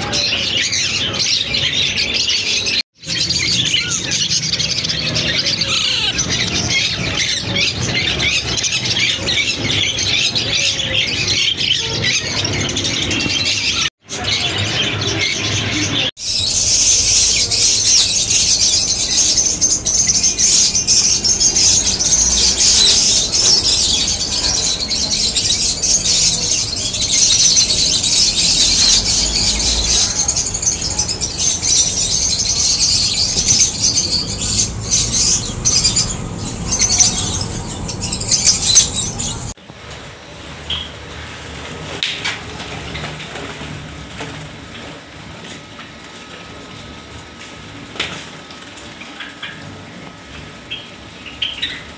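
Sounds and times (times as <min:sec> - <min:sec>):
lovebirds chattering: 0:00.0 - 0:39.6
parakeet chicks squawking: 0:00.0 - 0:39.6.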